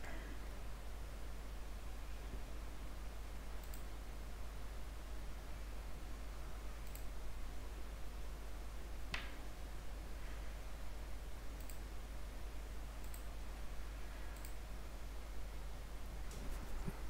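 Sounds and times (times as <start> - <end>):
low hum and hiss: 0.0 - 17.0
faint computer mouse clicks: 3.6 - 3.9, 6.8 - 7.1, 11.6 - 11.8, 13.0 - 13.3, 14.4 - 14.6.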